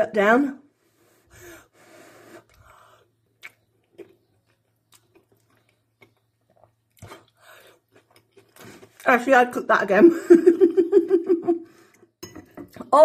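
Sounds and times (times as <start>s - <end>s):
faint chewing: 2.4s - 9.1s.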